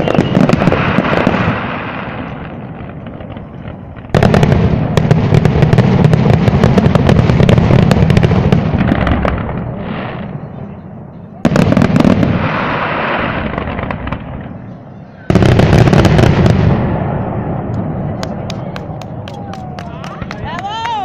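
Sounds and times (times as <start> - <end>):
fireworks bangs and crackling: 0.0 - 21.0.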